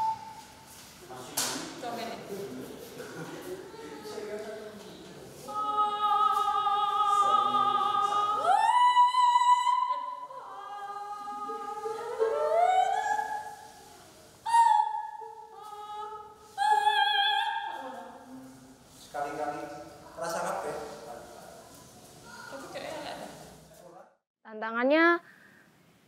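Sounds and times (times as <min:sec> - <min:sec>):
high classical singing voice: 0:05.4 - 0:18.3.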